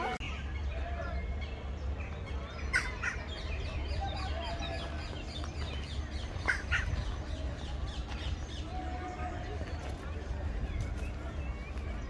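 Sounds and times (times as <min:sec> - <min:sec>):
birds calling and chattering: 0:00.0 - 0:12.0
sharp bird calls: 0:00.2 - 0:09.7.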